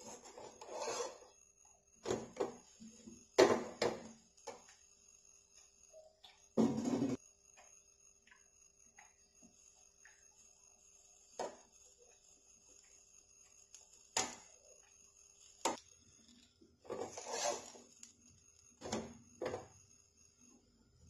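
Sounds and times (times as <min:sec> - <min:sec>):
scraping rush on griddle: 0:00.0 - 0:01.3, 0:16.9 - 0:18.0.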